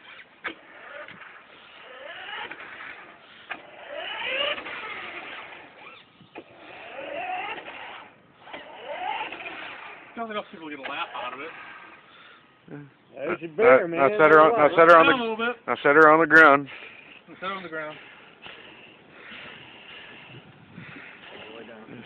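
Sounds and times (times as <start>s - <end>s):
small electric motors whining: 0.0s - 12.4s, 16.7s - 22.0s.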